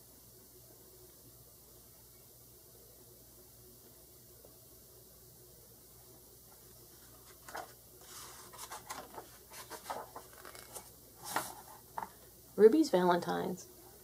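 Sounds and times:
paper page turning: 0:07.0 - 0:12.1.

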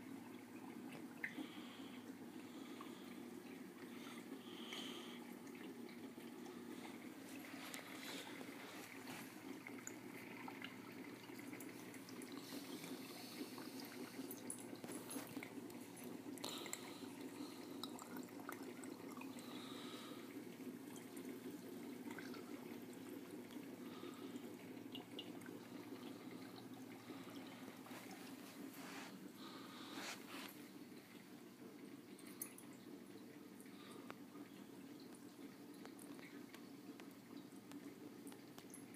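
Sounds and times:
water trickling and dripping: 0:00.0 - 0:38.9.

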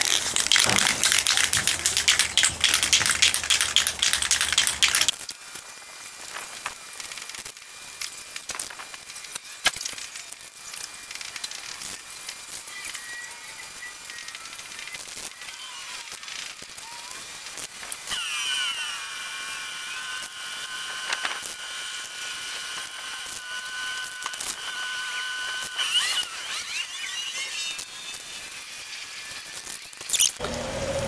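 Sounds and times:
scattered clicks: 0:00.0 - 0:05.7.

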